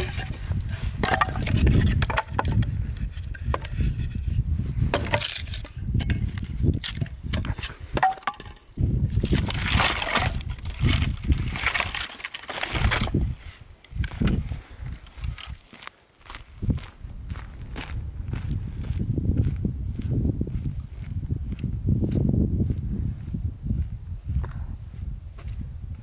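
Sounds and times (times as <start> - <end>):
wooden sticks clattering: 0.0 - 4.3, 4.9 - 13.2.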